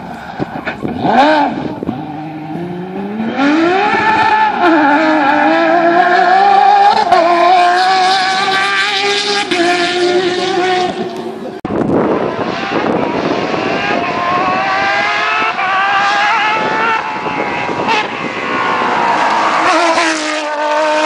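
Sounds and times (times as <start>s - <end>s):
car engine accelerating hard: 0.0s - 21.0s.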